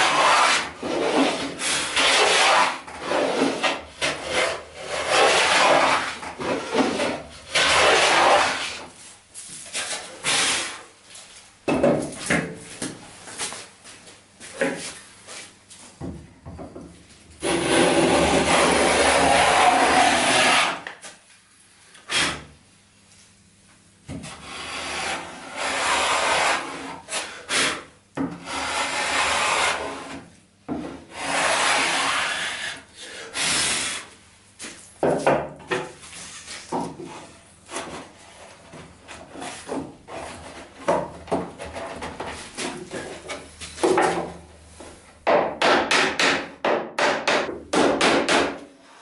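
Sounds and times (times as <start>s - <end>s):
hand plane rasping on wood: 0.0s - 8.7s, 17.4s - 20.8s, 24.4s - 27.7s, 28.4s - 30.2s, 31.1s - 32.8s.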